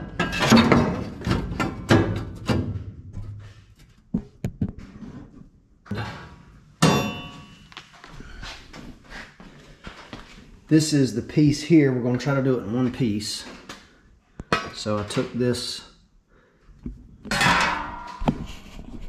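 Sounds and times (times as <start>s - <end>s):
metal clang ringing: 6.8s - 7.7s, 17.3s - 18.2s.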